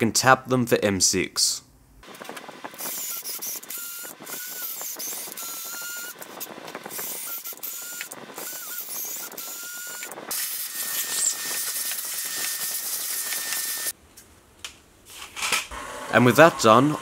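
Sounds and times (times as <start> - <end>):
drill motor whining: 2.2 - 13.9
cordless drill boring into metal: 2.8 - 6.3, 6.9 - 13.9.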